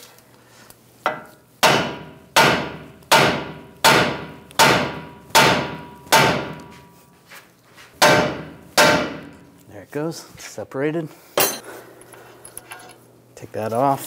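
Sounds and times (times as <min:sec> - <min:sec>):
hammer striking metal: 0:01.1 - 0:06.8, 0:08.0 - 0:09.4.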